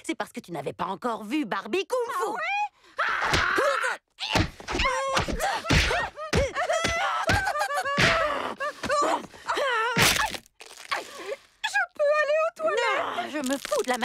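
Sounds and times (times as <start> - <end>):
fighters shouting and grunting: 2.0 - 10.0
punch and slap impacts: 4.3 - 7.4, 8.0 - 8.3.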